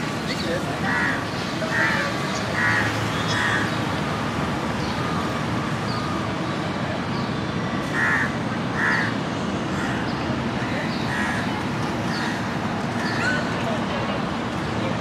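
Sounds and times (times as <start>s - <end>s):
outdoor background noise: 0.0s - 15.0s
crow cawing: 0.9s - 3.8s, 7.9s - 9.2s, 11.1s - 11.5s.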